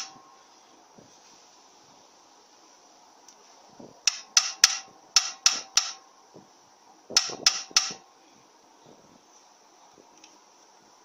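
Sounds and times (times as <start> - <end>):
hammer tapping metal punch: 4.1 - 6.0, 7.2 - 8.0.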